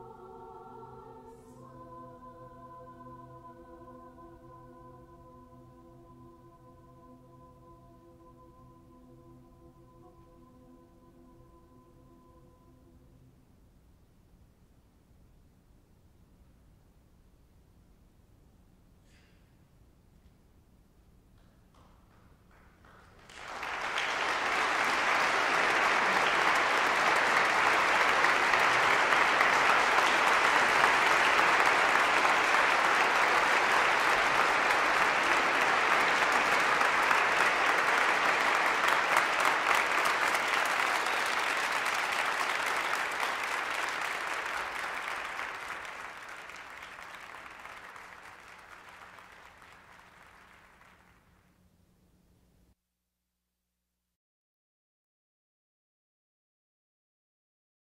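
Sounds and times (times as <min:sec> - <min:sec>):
audience applauding: 0:22.1 - 0:51.4.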